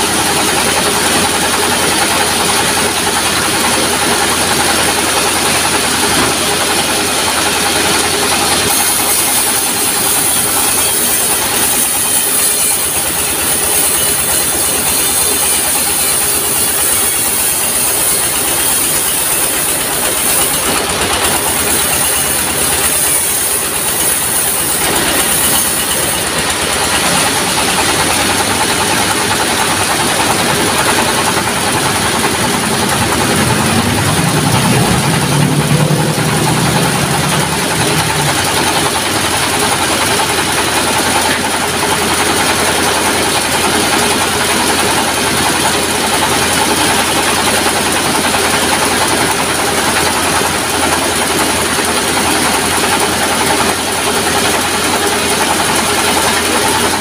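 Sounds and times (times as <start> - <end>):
diesel engine driving saw: 0.0 - 57.0
low hum: 30.1 - 40.2.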